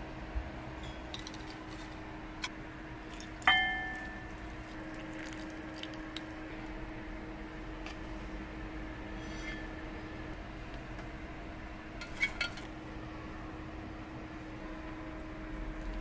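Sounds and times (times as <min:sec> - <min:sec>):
sharp ringing clink: 0:03.5 - 0:04.3
sauce being poured: 0:03.9 - 0:06.4.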